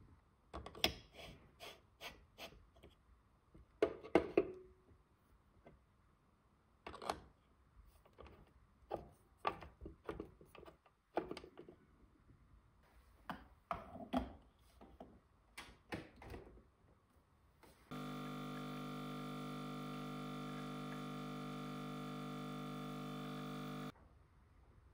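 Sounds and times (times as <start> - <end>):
steady hum: 17.9 - 23.9.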